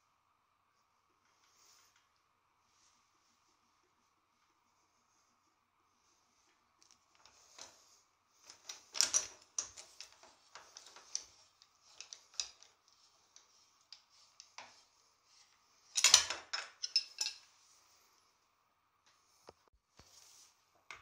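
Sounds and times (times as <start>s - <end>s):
metal parts rattling: 8.4s - 12.8s, 15.9s - 17.5s
metal tool clicks and clinks: 16.0s - 17.4s.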